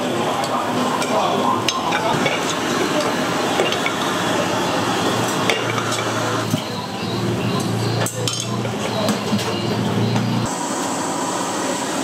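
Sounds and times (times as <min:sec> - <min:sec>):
metal utensils clinking on pots: 0:00.4 - 0:04.3, 0:05.3 - 0:06.6, 0:07.6 - 0:09.6.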